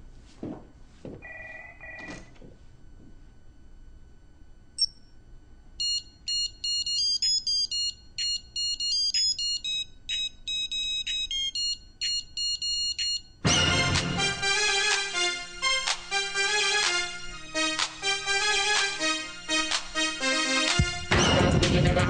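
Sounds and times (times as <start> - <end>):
digital watch alarm beeps: 5.8 - 13.4
loud electro music: 17.7 - 22.0.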